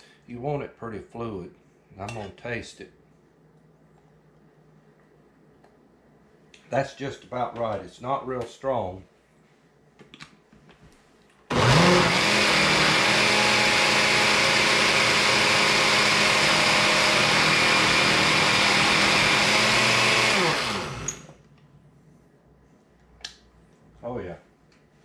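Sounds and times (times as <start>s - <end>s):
blender running: 11.5s - 21.3s.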